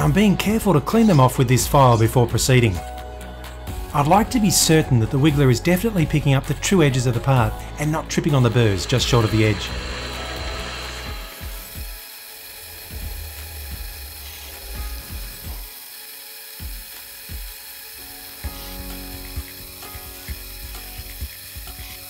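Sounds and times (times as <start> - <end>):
milling machine running: 7.1 - 22.0.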